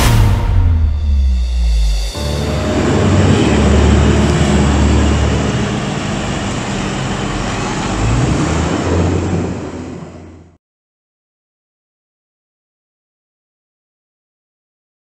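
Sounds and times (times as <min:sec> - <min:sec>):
tractor engine running: 0:01.2 - 0:10.5.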